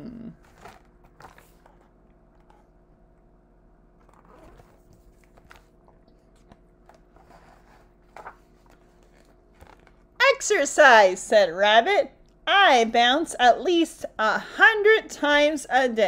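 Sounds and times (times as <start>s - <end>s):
steady low hum: 0.0s - 16.0s
book pages rustling and turning: 0.4s - 2.9s, 4.0s - 10.1s.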